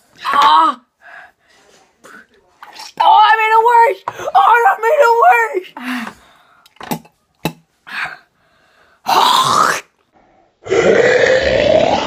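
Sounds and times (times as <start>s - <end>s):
boys gagging and clearing throats: 9.1s - 9.9s, 10.7s - 12.0s
retching groans: 10.6s - 12.0s.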